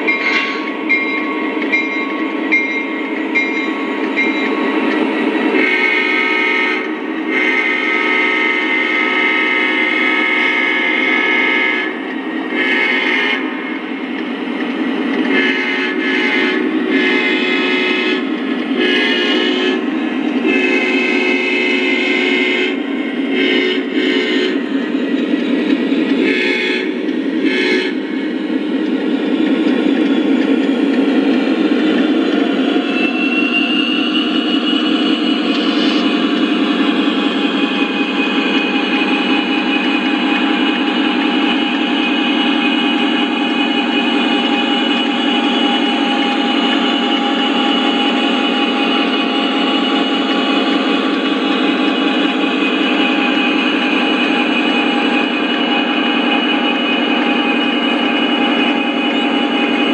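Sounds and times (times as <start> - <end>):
train running on track: 0.0 - 59.9
model train horn blasts: 5.5 - 13.5, 15.3 - 24.7, 26.2 - 28.1
high-pitched whine: 28.0 - 59.9.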